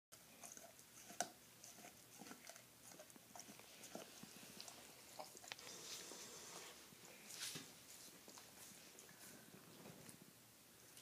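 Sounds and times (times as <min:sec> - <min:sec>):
dog gnawing a bone: 0:00.1 - 0:05.8.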